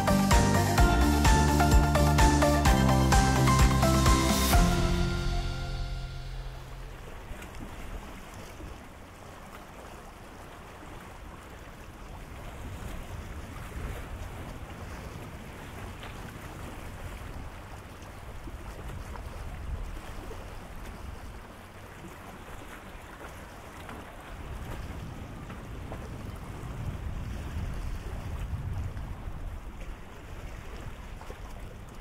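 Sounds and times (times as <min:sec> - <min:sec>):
low rumble: 0:00.0 - 0:08.1
sea waves washing: 0:00.0 - 0:32.0
wind buffeting microphone: 0:12.2 - 0:21.6, 0:24.0 - 0:32.0.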